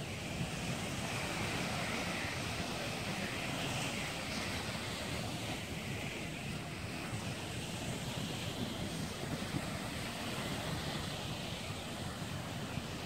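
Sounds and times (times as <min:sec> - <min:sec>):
ocean surf on sandy beach: 0:00.0 - 0:13.0
wind buffeting microphone: 0:00.0 - 0:13.0.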